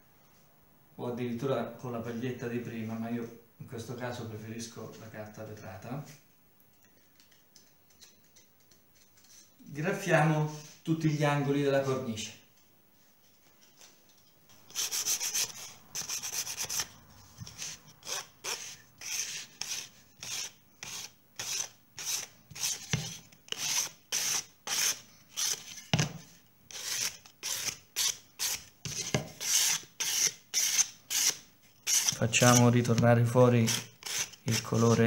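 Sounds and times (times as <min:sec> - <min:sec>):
sandpaper rubbing on wood: 0:14.7 - 0:16.9, 0:17.5 - 0:25.7, 0:26.7 - 0:32.8, 0:33.6 - 0:35.0.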